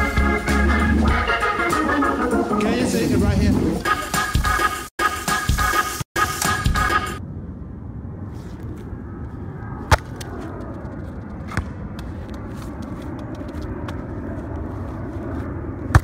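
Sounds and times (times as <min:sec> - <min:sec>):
low outdoor rumble: 0:07.2 - 0:16.0.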